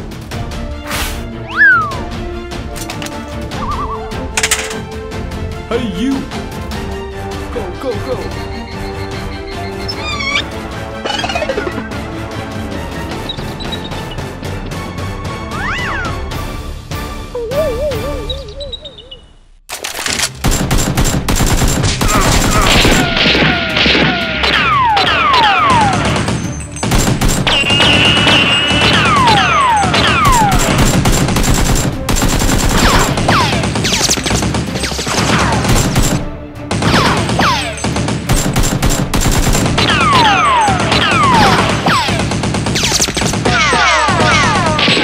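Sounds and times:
background music: 0.0s - 45.0s
falling whistles: 1.5s - 2.0s
rapid gunfire sound effects: 20.2s - 45.0s
rapid machine-gun fire: 20.3s - 45.0s.

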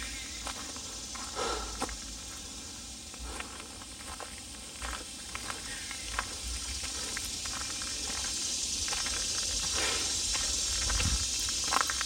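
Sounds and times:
footsteps on dry leaves and gravel: 0.0s - 12.0s
steady hiss: 0.0s - 12.0s.

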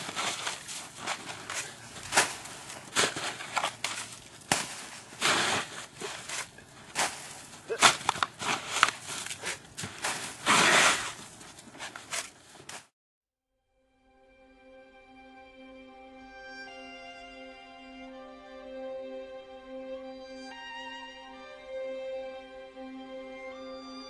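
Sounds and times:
snow crunching and scraping: 0.0s - 12.9s.

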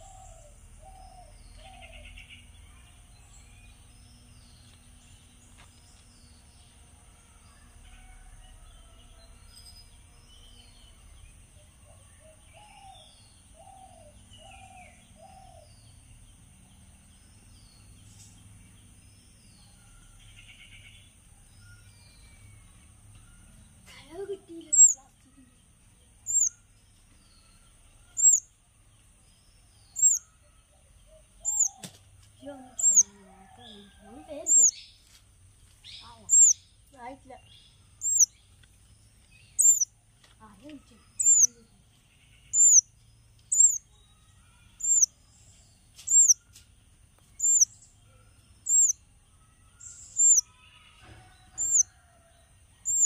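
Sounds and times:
songbird calling high note: 24.7s - 25.0s, 26.3s - 26.6s, 28.2s - 28.4s, 30.0s - 30.2s, 31.4s - 31.8s, 32.8s - 33.2s, 34.5s - 34.8s, 36.0s - 36.6s, 38.0s - 38.3s, 39.6s - 39.9s, 41.2s - 41.6s, 42.5s - 42.8s, 43.5s - 43.8s, 44.8s - 45.1s, 46.1s - 46.4s, 47.4s - 47.7s, 48.7s - 49.0s, 50.2s - 50.4s.

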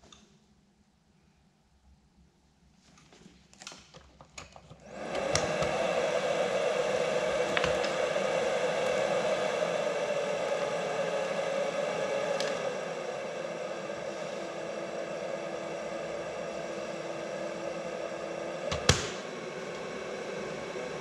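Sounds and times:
breathing machine blower running: 4.8s - 21.0s.

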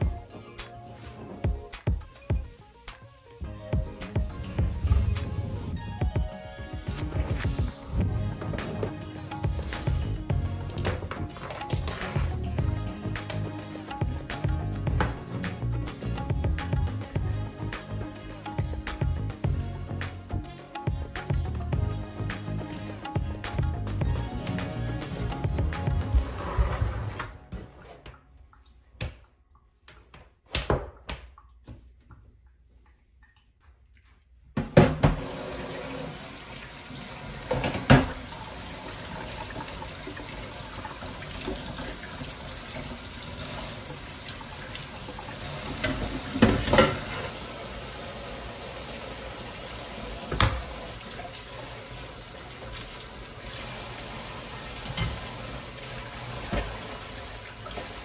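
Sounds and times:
faucet running into steel sink: 35.2s - 58.0s
parts clattering against sink: 45.7s - 47.4s.

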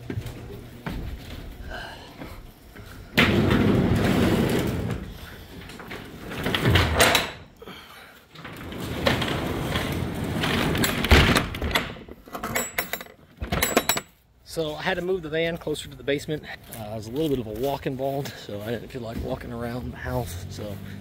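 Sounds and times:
items rattling and scraping: 0.0s - 7.6s, 8.2s - 14.7s
roll-up door rattling down: 3.2s - 7.5s, 8.3s - 14.0s.

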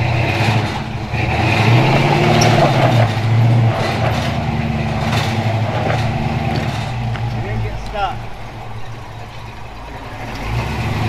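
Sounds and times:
pickup truck engine under load: 0.0s - 11.0s.

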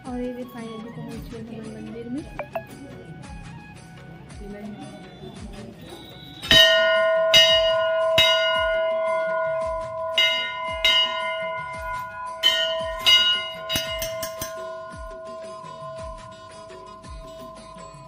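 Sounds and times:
temple bell ringing: 6.0s - 18.0s.

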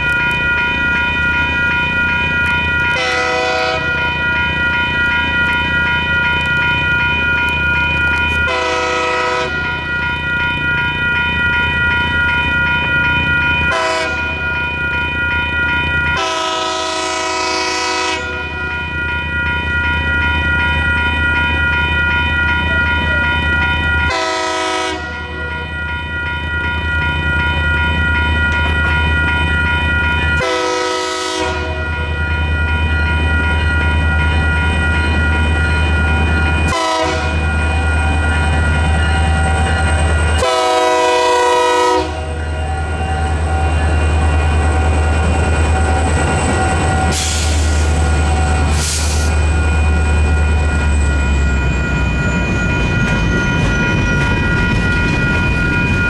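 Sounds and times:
railroad crossing bell ringing: 0.0s - 56.0s
locomotive air horn blasts: 3.0s - 4.0s, 8.5s - 9.6s, 13.7s - 14.3s, 16.2s - 18.5s, 24.1s - 25.3s, 30.4s - 31.9s, 36.7s - 37.4s, 40.4s - 42.4s.

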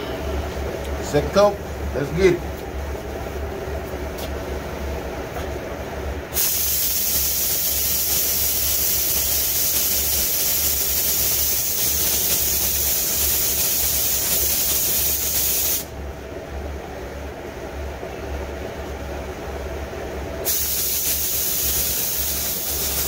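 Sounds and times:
low steady hum: 0.0s - 6.4s
spray gun air hiss: 6.3s - 15.9s, 20.4s - 23.0s.

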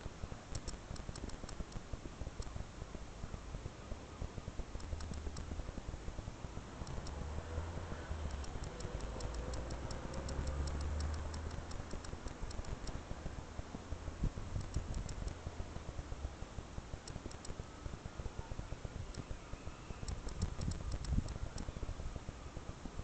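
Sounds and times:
faint high ticks: 0.5s - 2.6s, 4.8s - 5.9s, 6.7s - 16.1s, 16.9s - 22.0s
wind rumble on microphone: 0.5s - 23.0s.

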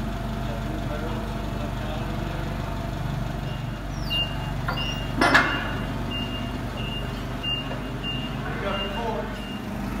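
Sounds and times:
forklift engine droning: 0.0s - 10.0s
reversing alarm beeps: 3.4s - 9.8s
sharp clunk: 4.7s - 5.8s.

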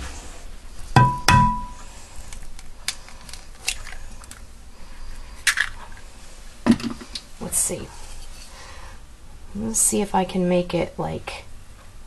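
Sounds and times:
egg knocking against hard edge: 1.0s - 1.8s
eggshell clicks breaking open: 5.4s - 5.8s.

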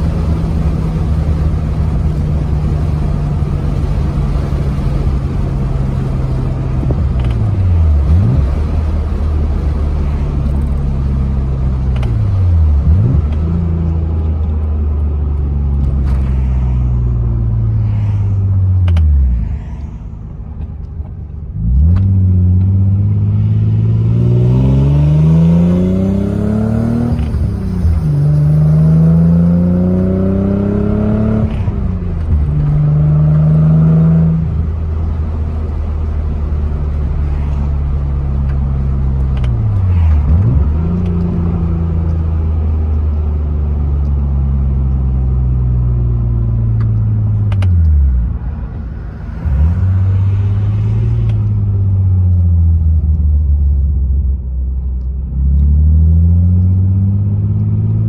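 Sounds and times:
car engine revving: 0.0s - 54.0s
road noise: 0.0s - 58.0s.

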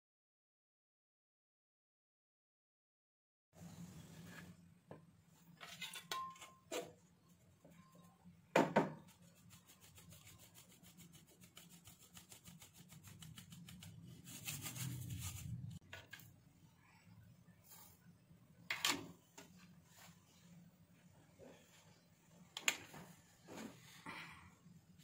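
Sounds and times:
metal sieve shaking flour: 9.0s - 15.8s.

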